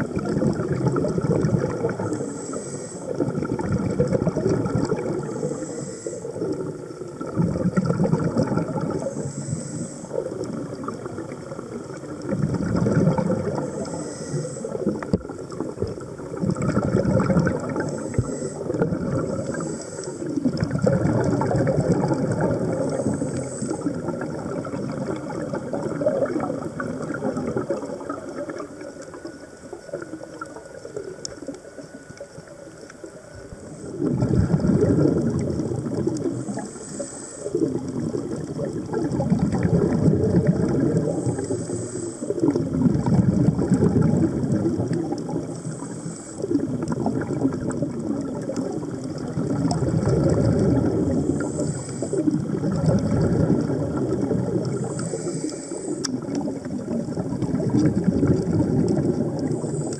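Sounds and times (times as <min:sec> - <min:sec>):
exhaled bubbles gurgling: 0:00.0 - 0:59.9
regulator inhale hiss: 0:01.9 - 0:03.3, 0:05.1 - 0:07.0, 0:08.9 - 0:10.5, 0:13.2 - 0:15.0, 0:17.6 - 0:20.6, 0:22.5 - 0:24.1, 0:33.4 - 0:34.7, 0:36.2 - 0:37.9, 0:41.0 - 0:42.6, 0:45.4 - 0:46.9, 0:51.2 - 0:52.5, 0:54.7 - 0:56.4, 0:59.4 - 0:59.9.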